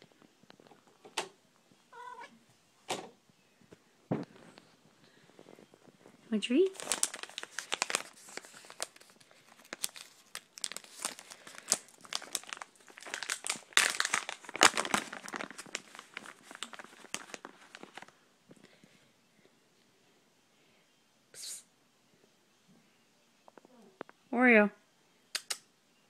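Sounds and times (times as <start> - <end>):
plastic bag crinkling: 4.3 - 18.2.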